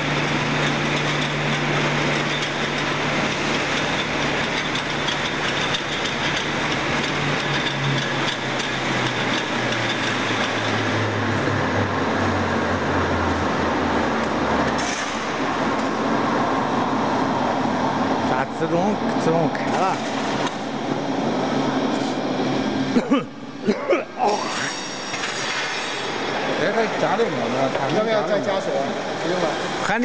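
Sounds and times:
rollers grinding wet material: 0.0s - 12.2s, 24.2s - 30.0s.

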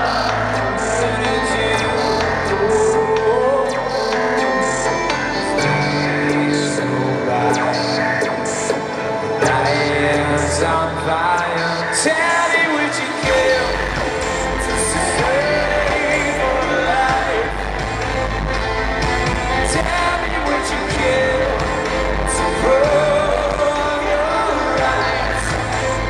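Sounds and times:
man singing lead vocals: 0.0s - 26.0s
deep bass: 13.2s - 26.0s.

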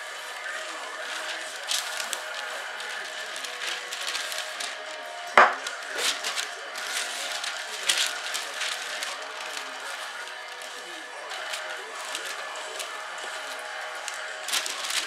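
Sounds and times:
paper rustling and crinkling: 0.0s - 15.0s
sharp knock: 5.4s - 5.6s.

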